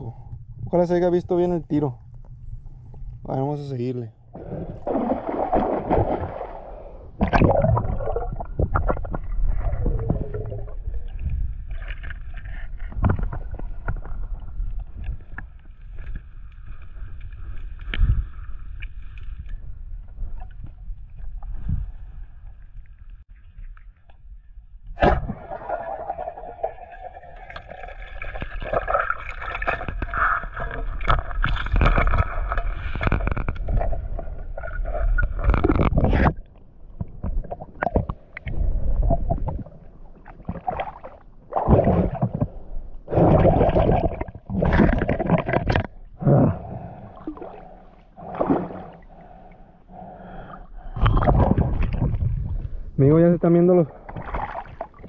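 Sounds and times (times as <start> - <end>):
water splashing: 4.4 - 12.4, 54.0 - 55.0
muffled underwater gurgling: 6.6 - 11.7.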